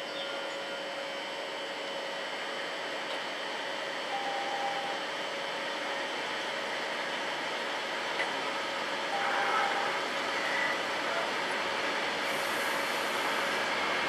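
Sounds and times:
train wheels rolling on rail: 5.6s - 14.0s.

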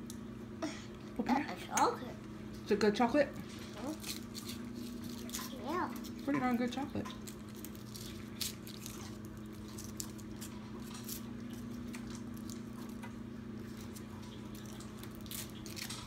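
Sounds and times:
steady low hum: 0.0s - 16.0s
foil wrapper crinkling: 3.6s - 13.0s, 13.6s - 16.0s.

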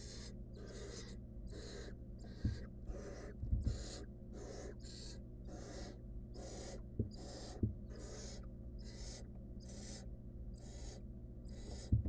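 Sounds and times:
owl nestlings hissing begging calls: 0.0s - 12.0s
dull thumps: 3.4s - 3.9s, 7.0s - 7.8s.

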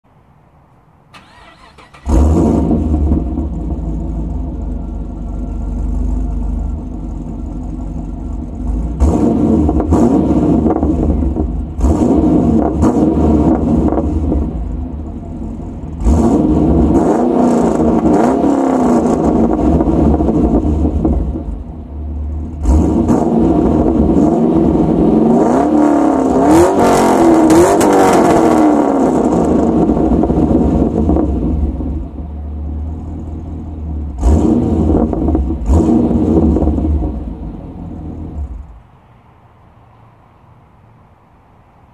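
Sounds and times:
car engine revving: 1.2s - 38.8s.

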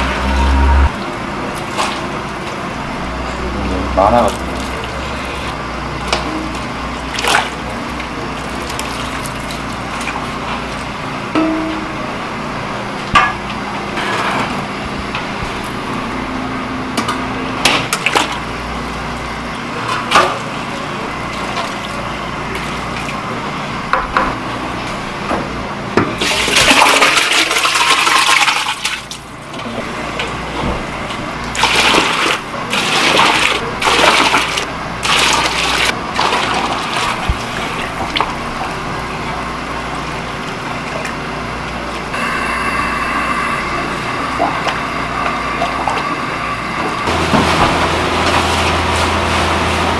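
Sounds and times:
soup pouring and splashing: 4.3s - 5.6s, 6.5s - 10.3s, 31.5s - 38.4s
ladle clinking on metal pot: 11.4s - 12.0s.

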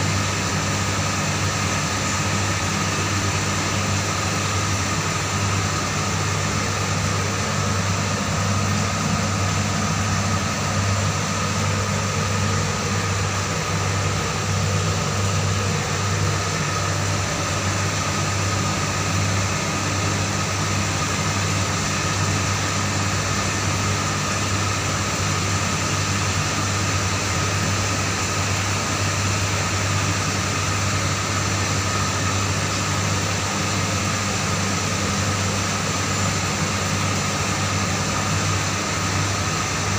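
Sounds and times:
machine hum with high whine: 0.0s - 39.9s.

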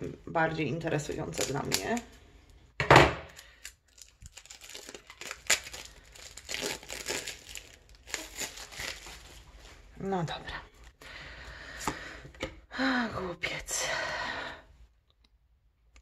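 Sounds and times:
wrapping being torn and crinkled: 1.0s - 2.2s, 3.3s - 9.9s.

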